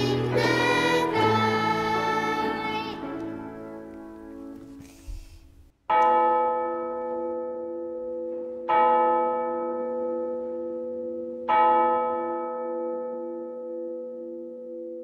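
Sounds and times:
church bell tolling: 5.9s - 15.0s.

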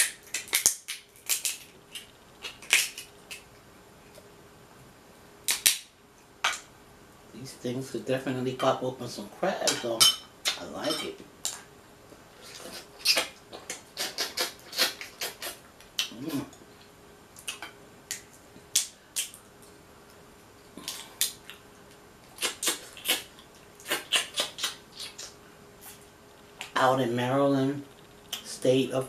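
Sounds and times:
crab shell cracking: 0.0s - 3.5s, 5.5s - 6.7s, 17.4s - 19.8s.

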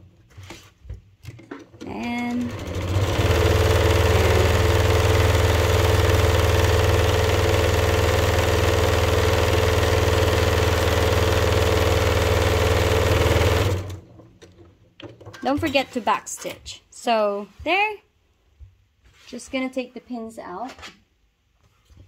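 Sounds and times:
electric sewing machine running: 2.0s - 14.1s.

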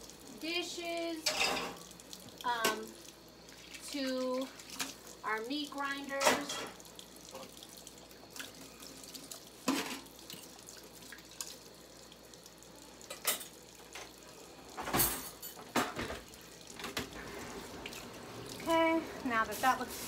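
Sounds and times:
dishes knocking and clattering: 14.8s - 17.1s.

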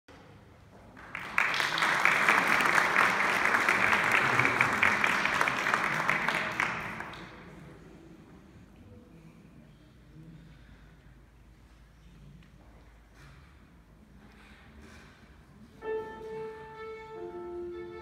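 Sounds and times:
audience applauding: 0.9s - 7.6s.

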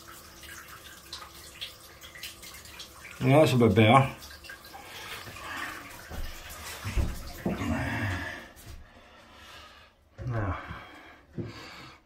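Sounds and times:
tap water running into bath: 0.0s - 8.9s.

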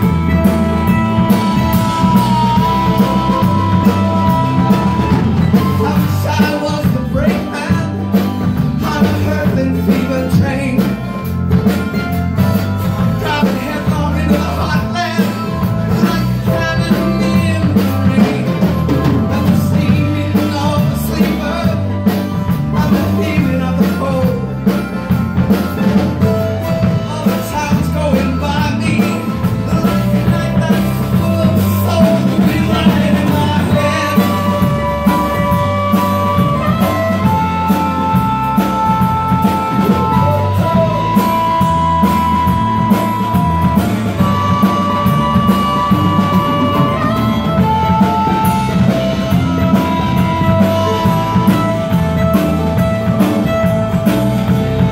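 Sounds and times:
person singing lead vocal: 0.0s - 11.5s, 13.0s - 24.9s, 25.9s - 52.4s
drum kit beat: 0.0s - 54.9s
electric bass: 0.0s - 54.9s
electric guitar: 0.0s - 54.9s
harmonica: 0.0s - 54.9s
acoustic guitar strumming: 31.2s - 54.9s.

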